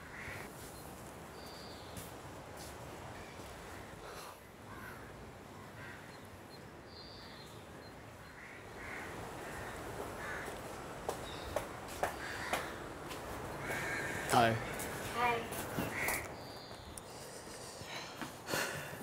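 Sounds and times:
crows cawing: 0:00.0 - 0:00.5, 0:03.2 - 0:06.2, 0:08.2 - 0:16.9
sharp taps: 0:11.0 - 0:13.3.

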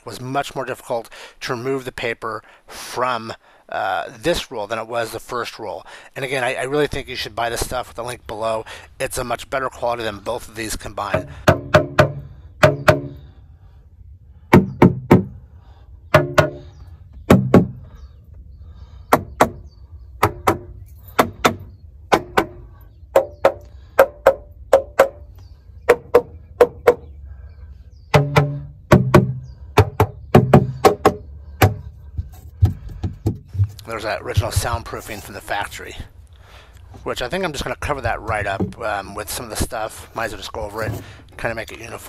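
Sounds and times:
music of sharp struck notes: 0:11.2 - 0:13.2, 0:16.1 - 0:16.6, 0:28.1 - 0:31.8.

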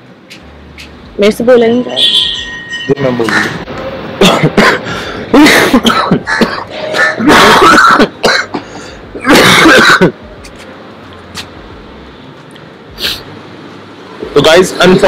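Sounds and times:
man coughing and clearing throat: 0:04.2 - 0:10.2.

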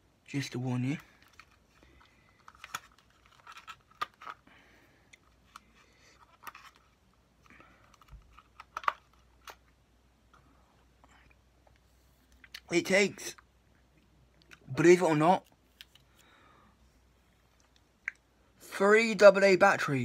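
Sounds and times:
objects being handled: 0:01.0 - 0:04.5, 0:05.1 - 0:10.4.

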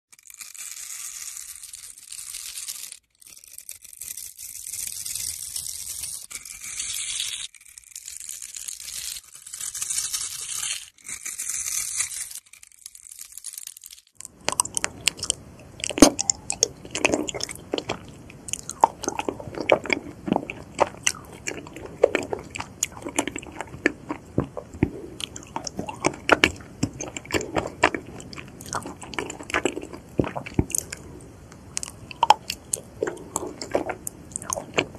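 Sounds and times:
blade scraping soap cubes: 0:00.2 - 0:12.4, 0:14.2 - 0:34.9
biting and chewing honeycomb: 0:13.3 - 0:34.9.

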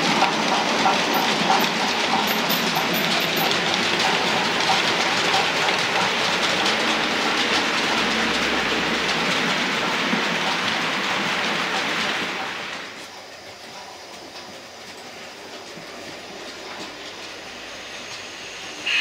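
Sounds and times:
model train wheels rattling: 0:00.0 - 0:10.9.

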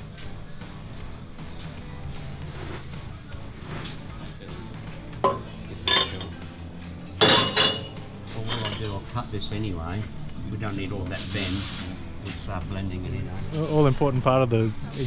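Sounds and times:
background music: 0:00.0 - 0:15.0
metallic clanks ringing: 0:05.2 - 0:06.4, 0:07.2 - 0:09.0.

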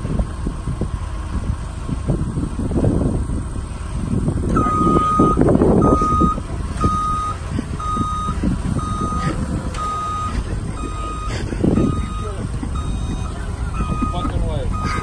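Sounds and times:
forklift engine running: 0:00.0 - 0:15.0
forklift backup alarm beeping: 0:04.5 - 0:15.0.

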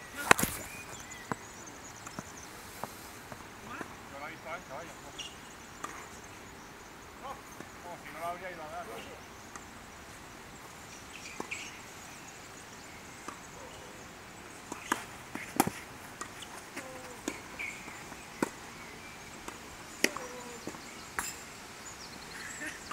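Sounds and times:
tennis ball hits and bounces: 0:14.7 - 0:18.7, 0:19.4 - 0:21.4.

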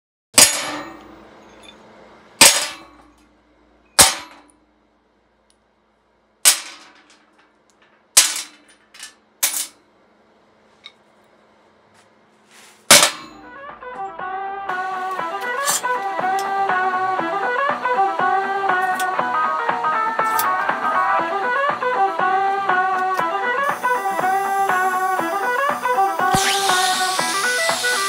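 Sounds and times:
metal clanging on steel table: 0:00.4 - 0:01.8, 0:02.4 - 0:03.1, 0:06.5 - 0:09.8, 0:12.9 - 0:13.4.

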